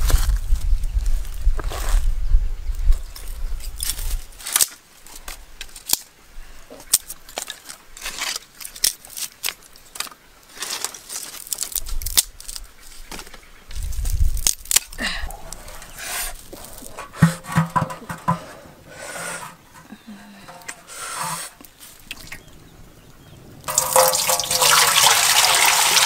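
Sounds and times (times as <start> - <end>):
dry sticks snapping: 3.8 - 6.1, 6.9 - 12.7, 14.3 - 15.6.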